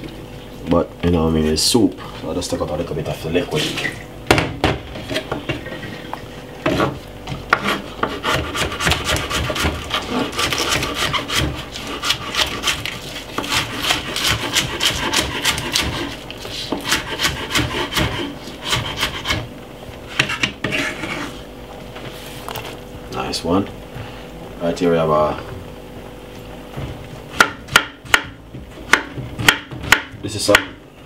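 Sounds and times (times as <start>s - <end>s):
knife chopping on wooden board: 6.6s - 19.5s, 27.3s - 30.8s.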